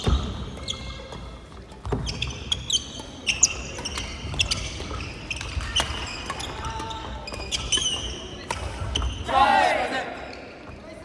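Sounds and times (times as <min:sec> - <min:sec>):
shoes squeaking on wooden floor: 0:00.0 - 0:08.2
rackets striking shuttlecock: 0:00.0 - 0:09.1.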